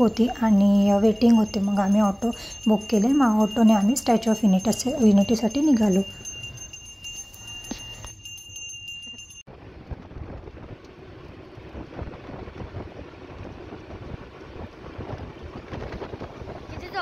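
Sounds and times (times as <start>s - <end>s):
road rumble: 0.0s - 17.0s
wind noise: 0.0s - 17.0s.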